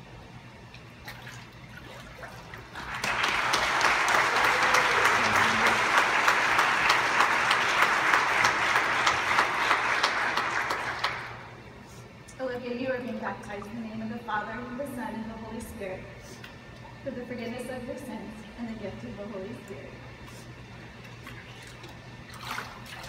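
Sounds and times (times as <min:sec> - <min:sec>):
crowd applause: 0:02.8 - 0:11.5.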